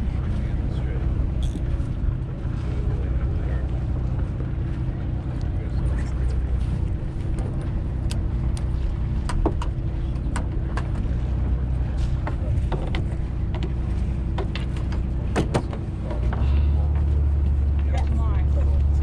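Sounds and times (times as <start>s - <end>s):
boat engine humming: 0.0s - 19.0s
light clicks and taps: 7.2s - 11.1s.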